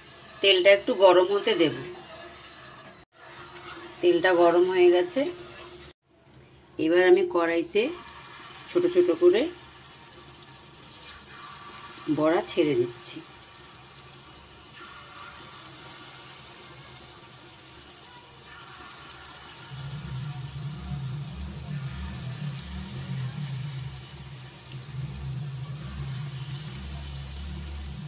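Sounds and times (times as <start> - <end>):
batter sizzling in hot oil: 3.1 - 6.0, 7.3 - 28.0
low droning hum: 19.7 - 28.0.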